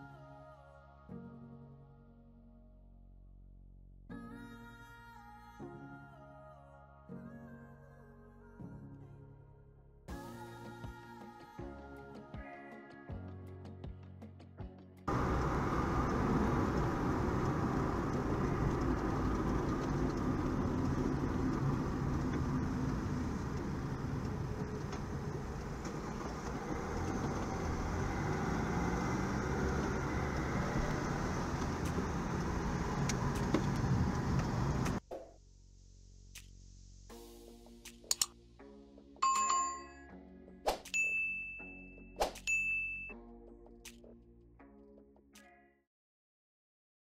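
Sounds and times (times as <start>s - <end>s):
car engine and road noise: 15.1s - 35.0s.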